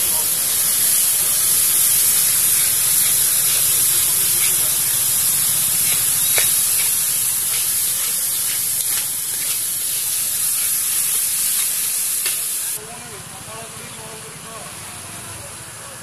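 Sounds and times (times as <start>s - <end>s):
oil and spices sizzling: 0.0s - 12.8s
oil spattering: 0.8s - 12.6s.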